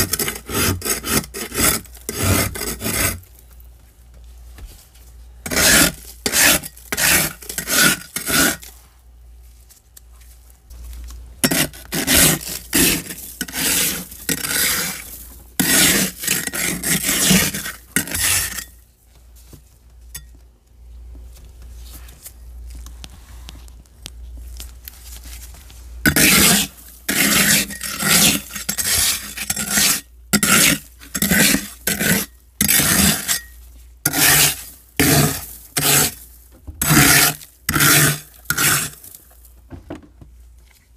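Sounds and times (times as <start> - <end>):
scraper scraping frost: 0.0 - 3.2, 5.5 - 8.8, 11.4 - 18.7, 26.1 - 33.5, 34.1 - 39.2.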